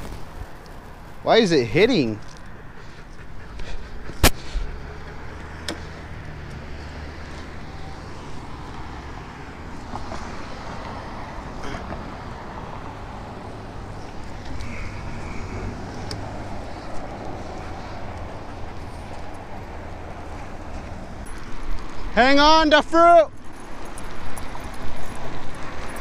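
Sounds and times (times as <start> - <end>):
low rumble of road traffic: 0.0 - 26.0.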